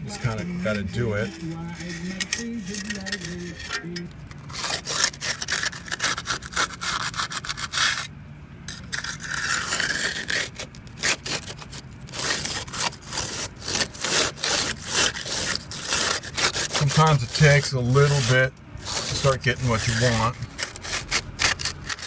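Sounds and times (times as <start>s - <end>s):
tool scraping wet concrete: 0.0s - 8.1s, 8.7s - 22.0s.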